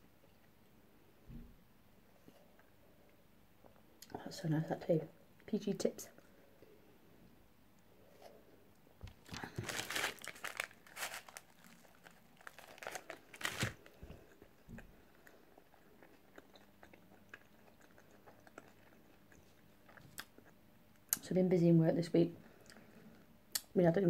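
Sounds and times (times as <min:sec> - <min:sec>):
person crunching crisp food: 0:09.1 - 0:14.6
person chewing: 0:09.1 - 0:20.6.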